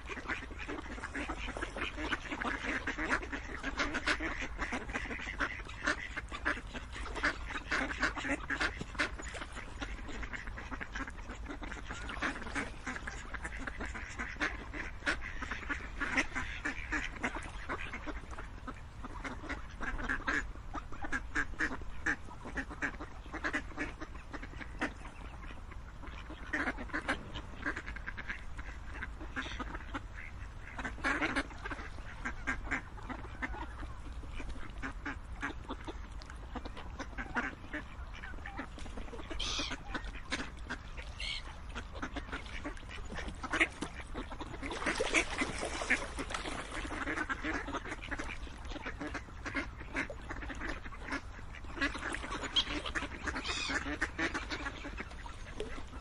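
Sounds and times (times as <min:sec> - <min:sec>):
ducks quacking: 0:00.0 - 0:56.0.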